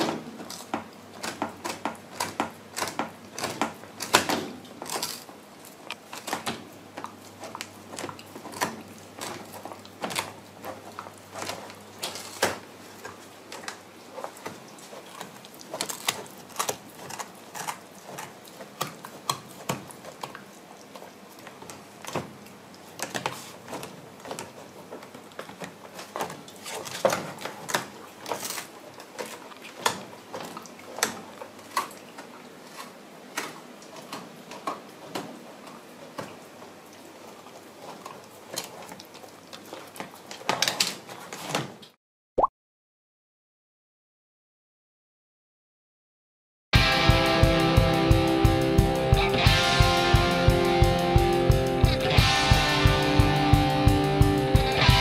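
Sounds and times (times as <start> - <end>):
dog gnawing chew bone: 0.2 - 41.9.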